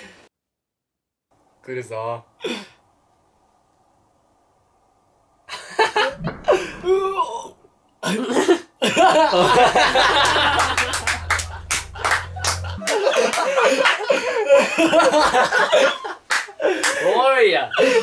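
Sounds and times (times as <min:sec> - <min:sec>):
startled vocal reaction: 0:06.1 - 0:07.7, 0:09.3 - 0:13.8
group laughing: 0:08.0 - 0:17.1, 0:17.7 - 0:18.0
people clapping: 0:09.4 - 0:14.3, 0:16.2 - 0:17.1.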